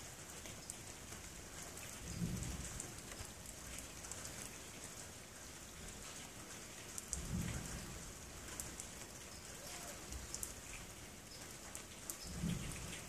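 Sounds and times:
low thunder rumble: 0:02.1 - 0:02.8, 0:07.2 - 0:08.1, 0:12.3 - 0:13.0.

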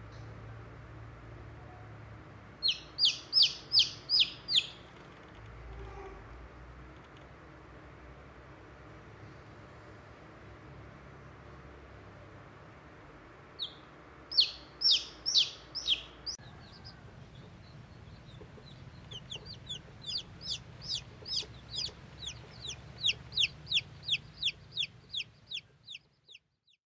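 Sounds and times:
baby chick peeping: 0:02.6 - 0:06.4, 0:13.6 - 0:26.8.

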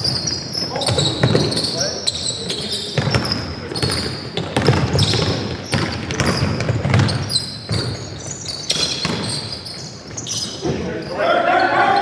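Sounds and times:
basketball bouncing on gym floor: 0:00.0 - 0:01.8, 0:02.9 - 0:09.6
sneakers squeaking: 0:00.0 - 0:12.0.

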